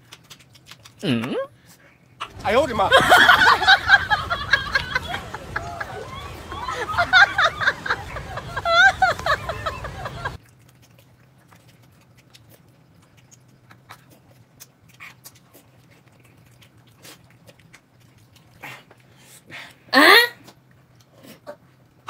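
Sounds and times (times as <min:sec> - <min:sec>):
person chewing and lip-smacking: 0:00.0 - 0:02.4, 0:10.4 - 0:22.0
low steady hum: 0:00.0 - 0:22.0.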